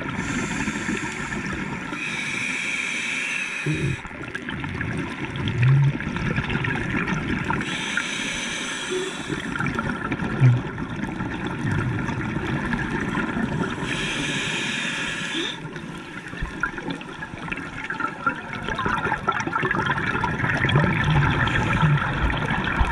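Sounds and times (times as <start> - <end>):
hissing regulator inhalations: 0.2 - 4.1, 7.6 - 9.6, 13.7 - 15.7
gurgling exhaled bubbles: 3.6 - 7.8, 8.9 - 22.9.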